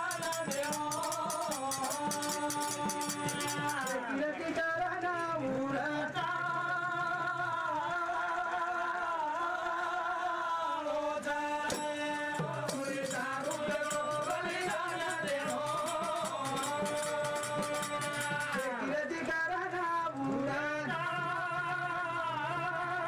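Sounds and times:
hand drum strokes: 0:00.0 - 0:04.0
man singing into a microphone: 0:00.0 - 0:23.0.

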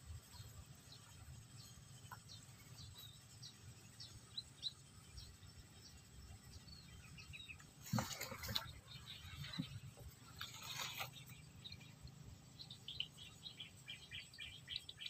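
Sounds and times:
small birds chirping: 0:00.0 - 0:15.0.

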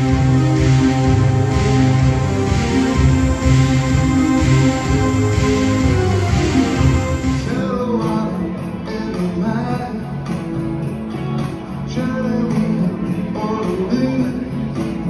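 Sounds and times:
instrumental accompaniment: 0:00.0 - 0:08.1.

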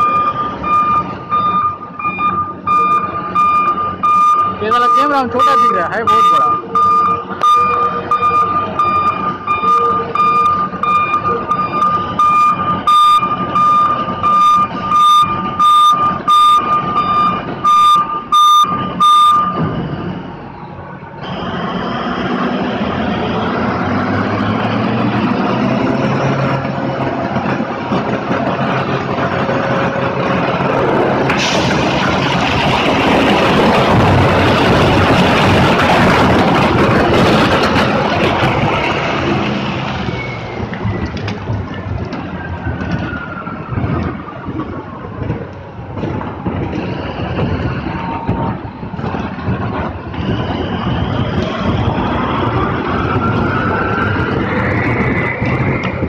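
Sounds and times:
reversing alarm beeping: 0:00.0 - 0:20.4
truck engine: 0:00.0 - 0:56.0
rock pouring rumble: 0:31.0 - 0:39.7.

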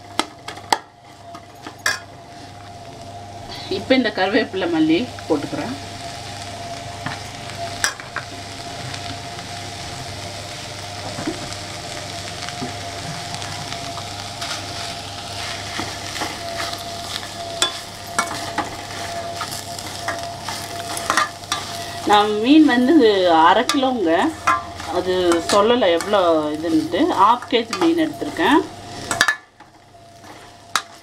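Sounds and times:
fish and vegetables sizzling in pan: 0:00.0 - 0:31.0
steady hum: 0:00.0 - 0:31.0
spatula scraping against pan: 0:15.4 - 0:23.0, 0:23.6 - 0:28.4.

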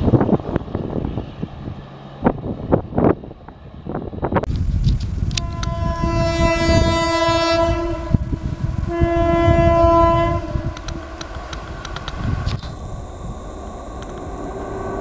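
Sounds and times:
train rumble: 0:00.0 - 0:15.0
train horn blasts: 0:05.3 - 0:11.2.

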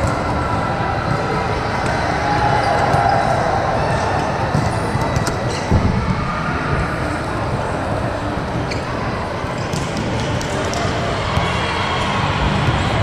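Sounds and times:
many people talking: 0:00.0 - 0:13.0
volleyballs bouncing on floor: 0:09.6 - 0:11.6.

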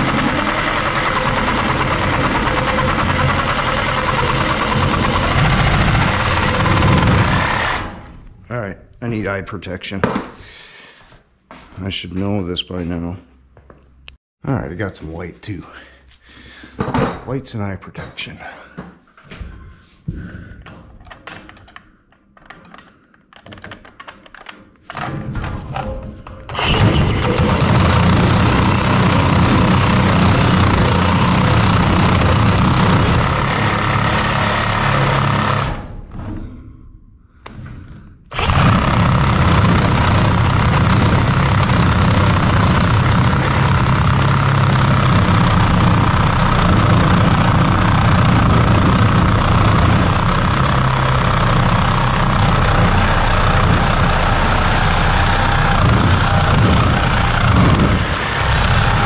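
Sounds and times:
power saw cutting steel: 0:00.0 - 0:08.2, 0:26.5 - 0:35.9, 0:38.3 - 0:59.0.

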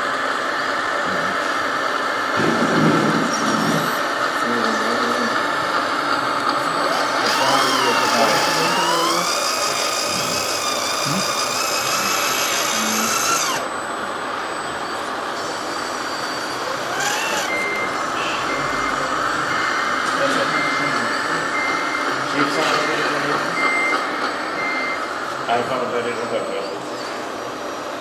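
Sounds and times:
small electric motors whining: 0:02.8 - 0:23.7
reversing beeper short beeps: 0:13.7 - 0:25.1.

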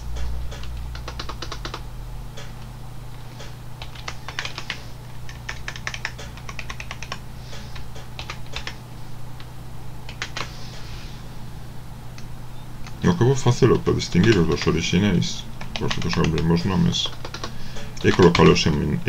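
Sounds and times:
keyboard keys clicking: 0:00.5 - 0:01.8, 0:03.8 - 0:07.2, 0:07.8 - 0:08.8, 0:10.1 - 0:10.5, 0:13.7 - 0:14.8, 0:15.6 - 0:18.8.

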